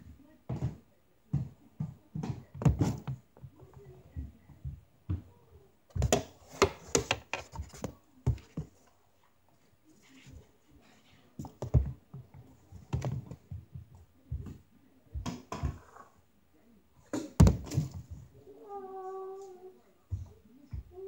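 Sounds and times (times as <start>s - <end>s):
knocks and thumps: 17.1s - 18.2s.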